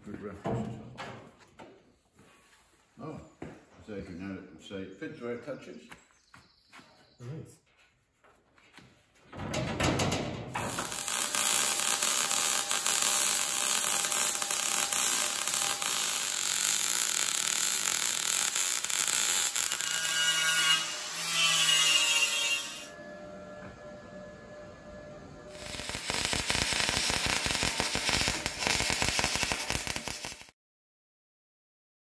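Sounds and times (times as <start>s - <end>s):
welder sizzling crackle: 10.6s - 22.9s, 25.5s - 30.6s.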